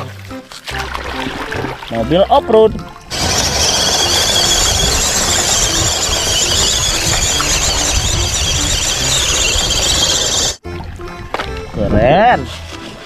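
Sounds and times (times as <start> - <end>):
electric motor whining: 3.1 - 10.6.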